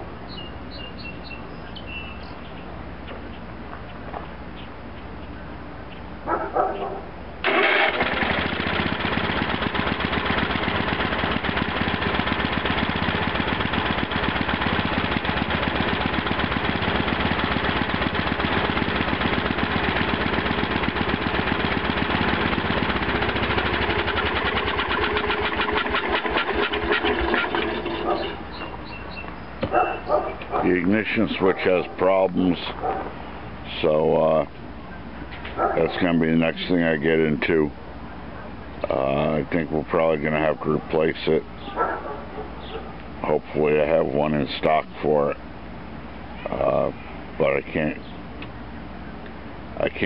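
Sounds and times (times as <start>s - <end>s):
garden tractor engine running: 7.4s - 32.9s, 38.8s - 41.9s.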